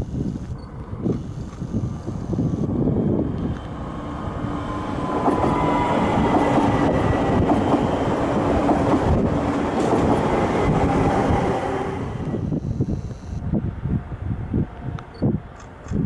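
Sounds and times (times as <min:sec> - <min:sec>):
electric drive whine: 0:00.0 - 0:02.8, 0:12.2 - 0:13.5
train rumbling on rails: 0:00.5 - 0:16.0.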